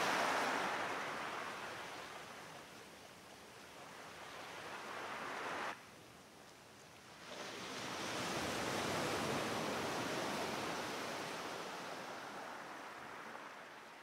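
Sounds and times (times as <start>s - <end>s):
rushing surf-like water: 0.0s - 14.0s.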